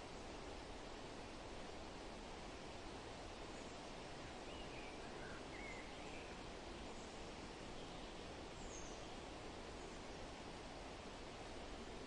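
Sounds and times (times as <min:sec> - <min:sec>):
outdoor background hiss: 0:00.0 - 0:12.0
faint bird chirps: 0:03.5 - 0:10.4.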